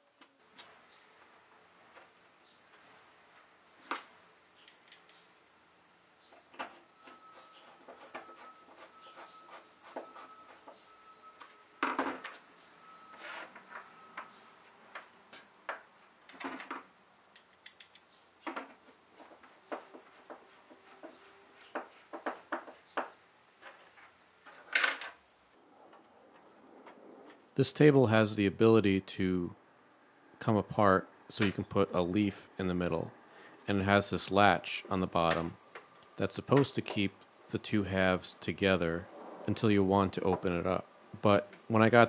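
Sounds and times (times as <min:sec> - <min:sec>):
screwdriver clicks and squeaks: 0:17.3 - 0:18.1.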